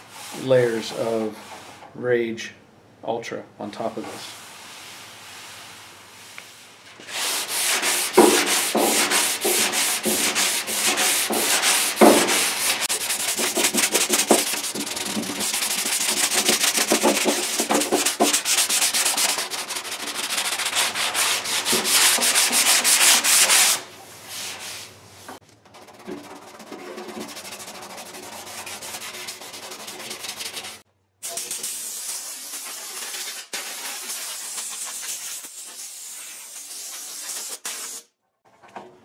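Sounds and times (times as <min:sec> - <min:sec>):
sanding block on metal: 0:07.0 - 0:24.9, 0:25.7 - 0:38.1.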